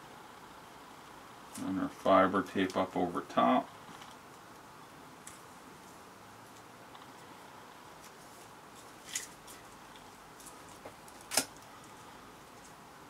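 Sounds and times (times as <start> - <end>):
tape crackles: 3.8 - 7.3, 7.9 - 12.8
tape handling and crinkling: 3.9 - 7.3, 7.9 - 12.8.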